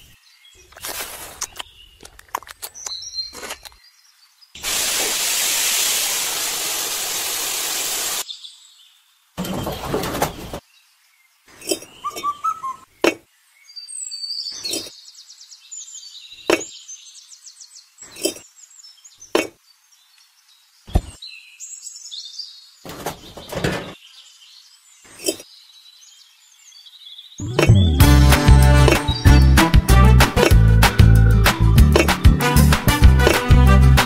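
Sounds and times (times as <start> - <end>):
birds chirping: 8.1 - 29.7.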